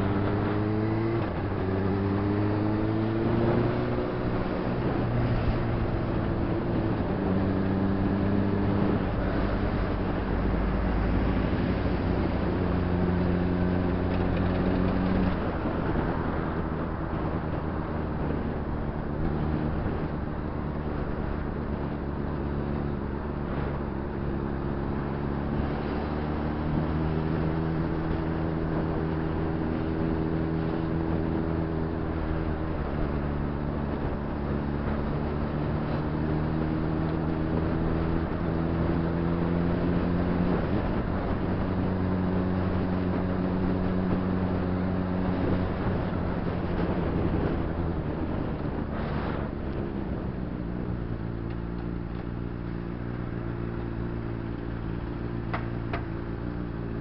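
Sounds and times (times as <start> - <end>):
road and wind noise: 0.0 - 57.0
motorcycle engine running: 12.4 - 57.0.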